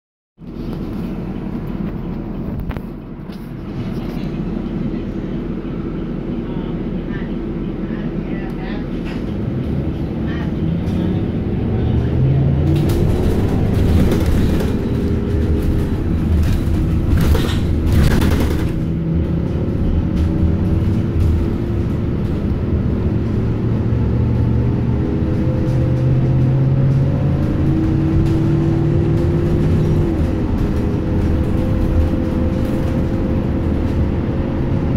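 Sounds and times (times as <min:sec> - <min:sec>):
bus engine and road rumble: 0:00.4 - 0:34.9
drivetrain whine: 0:00.4 - 0:34.9
rattly noise: 0:12.6 - 0:23.6, 0:25.3 - 0:34.5.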